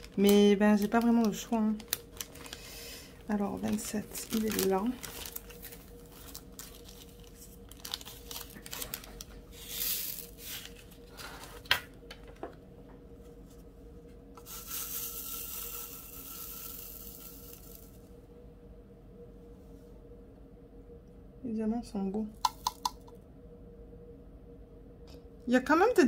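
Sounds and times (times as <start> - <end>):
plastic bag crinkling: 0.0 - 11.7
beads pouring into plastic tray: 9.6 - 10.8, 14.4 - 18.0
beads sliding in tray: 9.6 - 11.6, 14.4 - 17.9.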